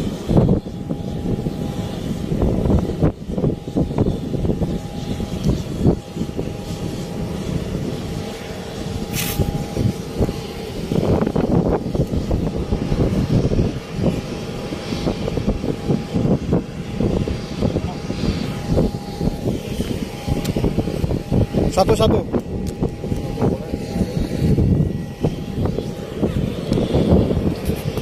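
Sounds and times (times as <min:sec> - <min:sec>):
distant aircraft engines hum: 0:00.0 - 0:28.0
wind buffeting microphone: 0:00.0 - 0:28.0
short hiss: 0:09.1 - 0:09.5.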